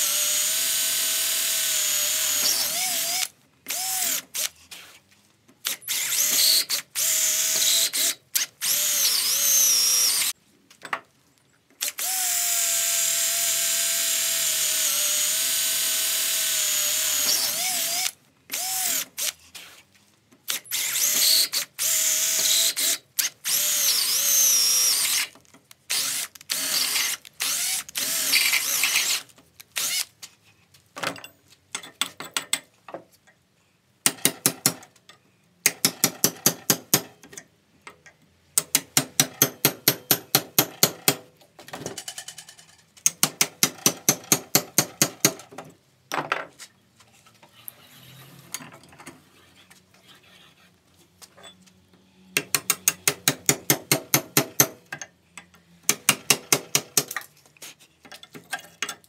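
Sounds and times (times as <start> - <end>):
cordless drill boring into steel: 0.0 - 4.6, 5.7 - 10.3, 11.8 - 19.4, 20.5 - 25.3, 25.9 - 30.1
hammer striking chisel: 35.7 - 37.1, 38.6 - 41.2, 43.0 - 45.4, 52.4 - 54.8, 55.9 - 57.2.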